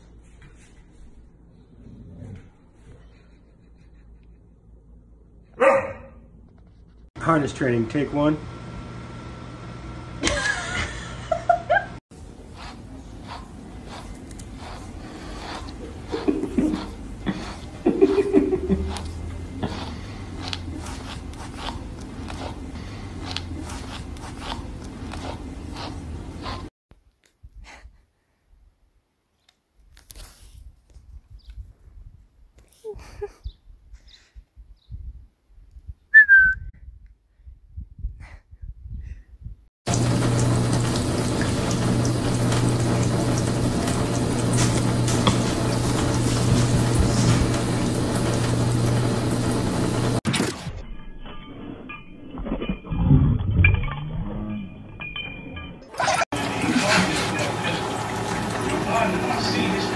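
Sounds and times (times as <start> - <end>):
rustling of petting: 29.8 - 31.9
faucet water running into sink: 39.9 - 50.2, 56.0 - 59.9
low hum: 39.9 - 55.9.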